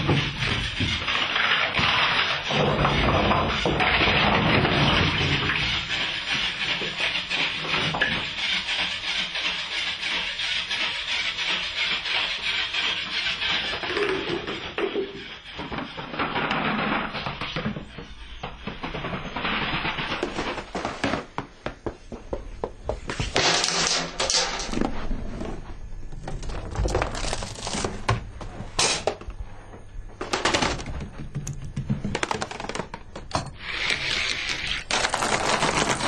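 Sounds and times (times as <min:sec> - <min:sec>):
dominoes toppling: 0:33.5 - 0:36.0.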